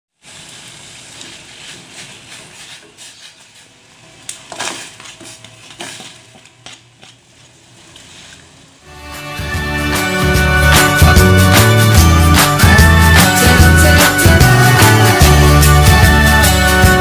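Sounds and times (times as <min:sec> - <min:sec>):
water boiling in a pot: 0:00.1 - 0:06.2
spoon scraping a bowl: 0:01.6 - 0:03.8.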